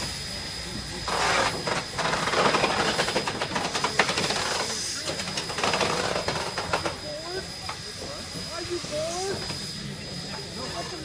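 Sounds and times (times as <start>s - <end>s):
steady hiss of steam: 0.0s - 11.0s
steam locomotive exhaust chuffs: 0.0s - 11.0s.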